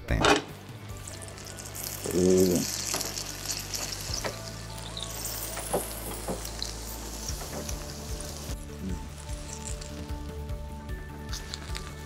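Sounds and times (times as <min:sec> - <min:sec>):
batter sizzling on hot pan: 0:00.6 - 0:12.0.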